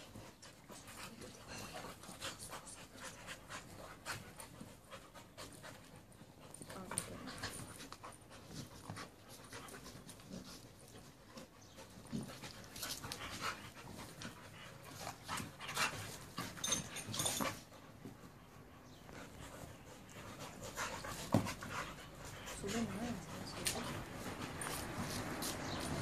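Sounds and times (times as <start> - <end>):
dogs scuffling: 19.1 - 26.0.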